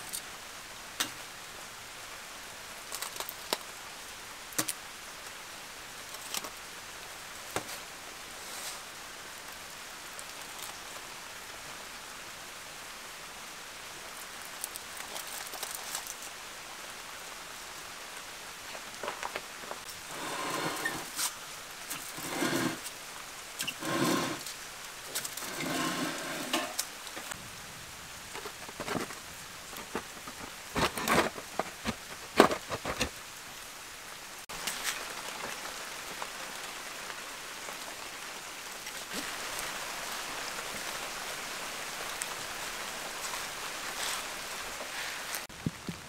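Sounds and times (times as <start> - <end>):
wood fire crackling and popping: 6.0 - 6.6, 14.2 - 16.3, 18.7 - 23.0
metal rake scraping brick floor: 19.8 - 22.9, 23.6 - 26.9, 29.8 - 33.1.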